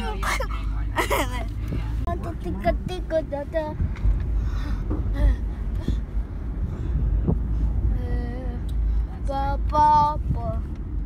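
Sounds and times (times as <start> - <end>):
car road rumble: 0.0 - 11.0.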